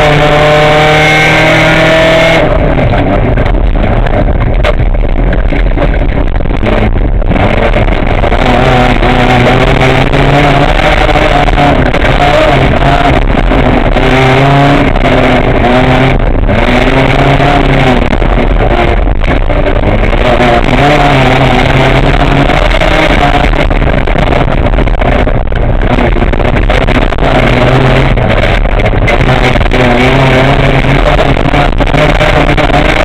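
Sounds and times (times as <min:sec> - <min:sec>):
rally car engine revving: 0:00.0 - 0:33.0
tyre and road noise: 0:00.0 - 0:33.0.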